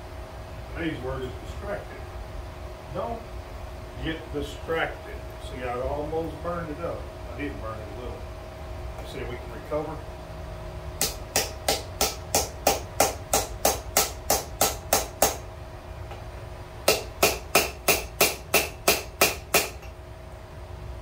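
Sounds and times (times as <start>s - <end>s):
hammer striking iron on anvil: 11.0s - 15.4s, 16.8s - 19.9s.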